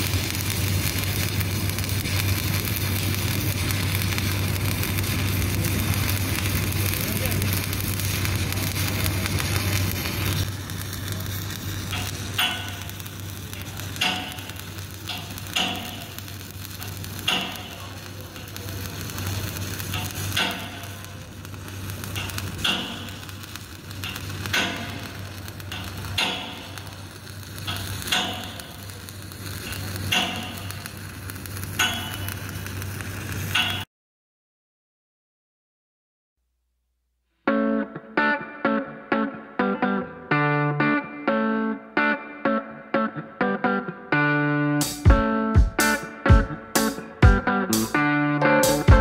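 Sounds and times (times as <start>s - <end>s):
welding arc crackling: 0.0s - 33.9s, 44.2s - 49.0s.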